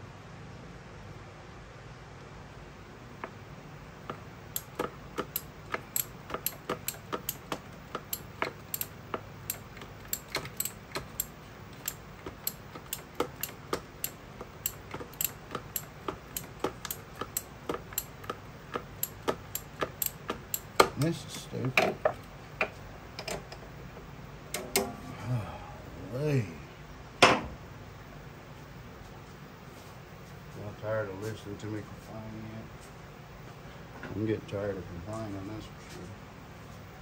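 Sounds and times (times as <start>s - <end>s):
ratchet clicking: 4.1s - 21.0s.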